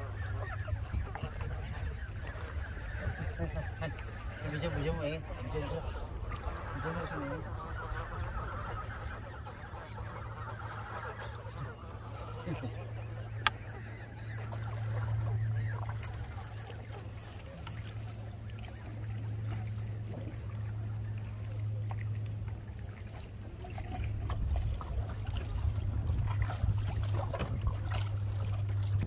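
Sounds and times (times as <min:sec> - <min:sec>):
geese honking: 0:00.0 - 0:21.9
low steady rumble: 0:00.0 - 0:29.0.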